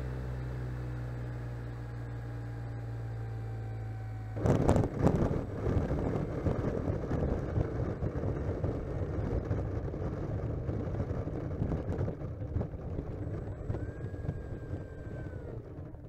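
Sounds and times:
wheels rumbling over asphalt: 0.0s - 16.0s
wind buffeting microphone: 4.4s - 16.0s.

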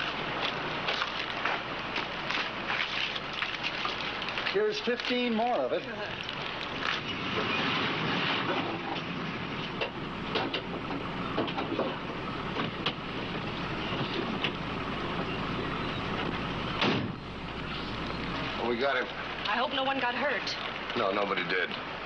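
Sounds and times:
car engine running: 5.2s - 22.0s
car door shutting: 16.2s - 17.2s.

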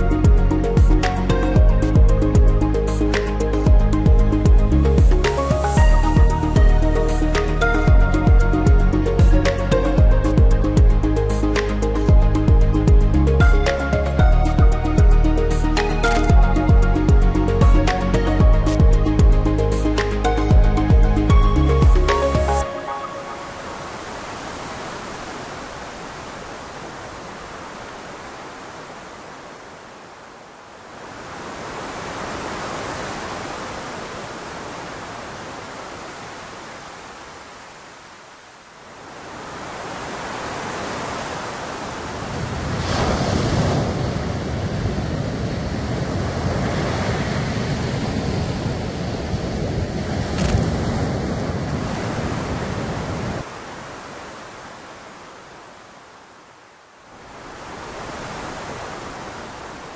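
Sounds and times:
ocean surf on a beach: 21.2s - 59.9s
wind on the microphone: 42.1s - 53.5s.

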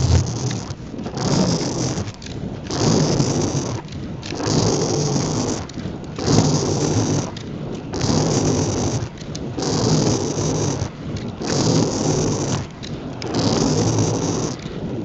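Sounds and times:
skate wheels rolling on asphalt: 0.0s - 15.0s.

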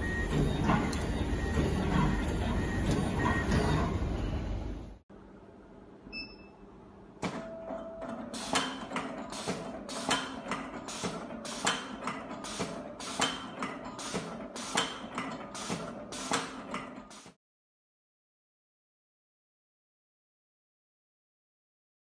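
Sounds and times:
faint machine hum: 0.0s - 17.0s.

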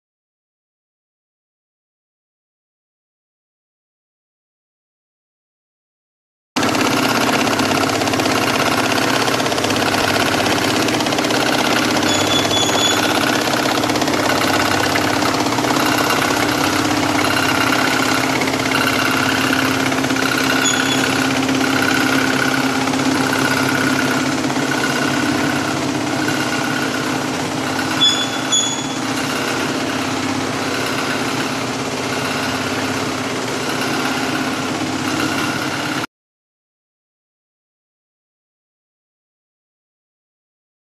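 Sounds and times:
sewing machine mechanical drone: 6.6s - 36.1s.

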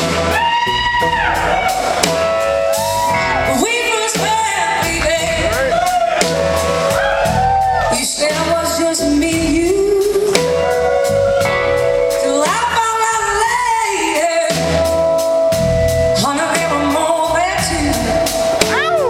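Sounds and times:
drums: 0.0s - 19.0s
electric guitars: 0.0s - 19.0s.

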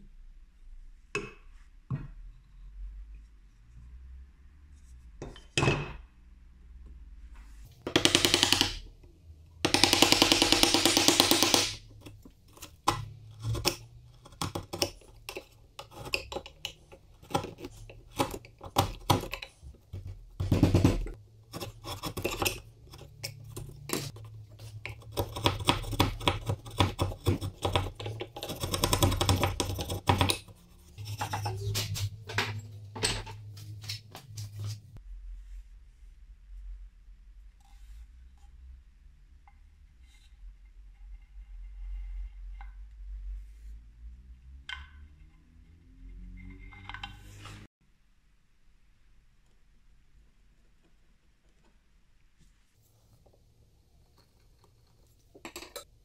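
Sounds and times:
chisel cuts and taps on wood: 7.9s - 8.8s, 9.7s - 11.8s, 24.8s - 31.6s
hand tool scraping wood: 20.4s - 32.2s.

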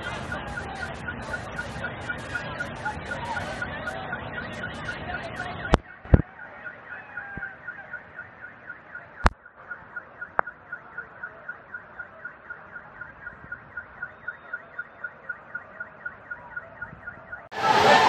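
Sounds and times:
loud voices: 0.0s - 9.3s, 15.5s - 18.0s
electronic alarm beeping rapidly: 0.0s - 18.0s.

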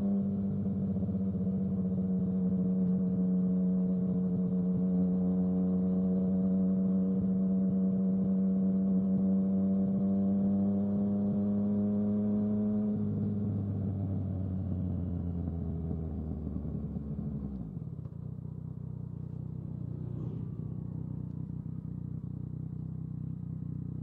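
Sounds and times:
motorcycle engine cruising: 10.3s - 24.0s.

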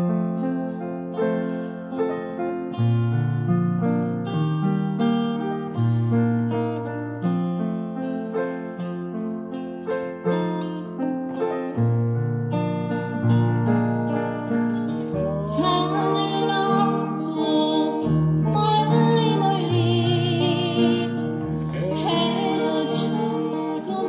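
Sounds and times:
acoustic guitar backing track: 0.0s - 24.0s
digital piano: 0.0s - 24.0s
person singing with vibrato: 14.4s - 24.0s.

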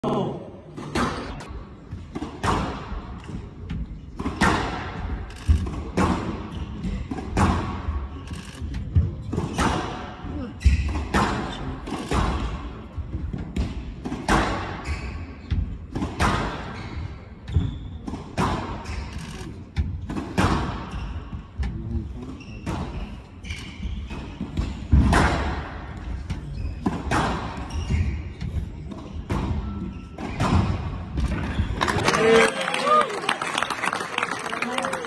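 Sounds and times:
ball hitting court walls: 0.8s - 8.0s, 8.6s - 12.6s, 13.2s - 16.8s, 17.5s - 19.1s, 19.8s - 21.0s, 24.1s - 32.0s
racket striking squash ball: 0.8s - 14.9s, 15.5s - 19.1s, 19.7s - 21.4s, 23.8s - 31.7s.

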